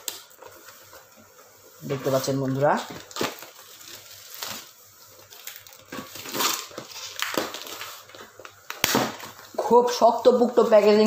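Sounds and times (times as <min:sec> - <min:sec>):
plastic wrap crinkling and tearing: 0:00.0 - 0:11.0
sharp plastic crack: 0:02.9 - 0:03.6, 0:05.4 - 0:09.4.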